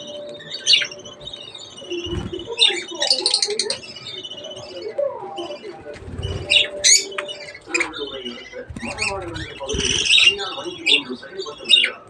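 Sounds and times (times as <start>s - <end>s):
budgerigars chirping: 0.0s - 12.0s.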